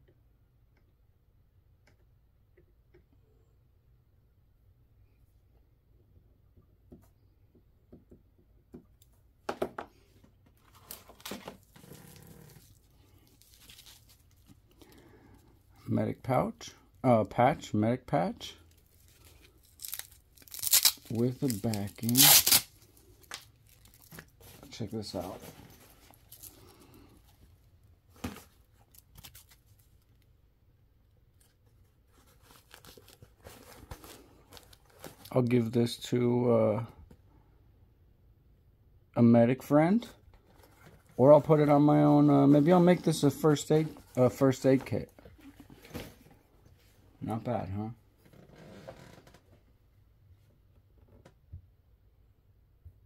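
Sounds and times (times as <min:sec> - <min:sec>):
packaging crinkling and rustling: 0:10.6 - 0:14.7, 0:18.8 - 0:26.9, 0:32.1 - 0:35.5.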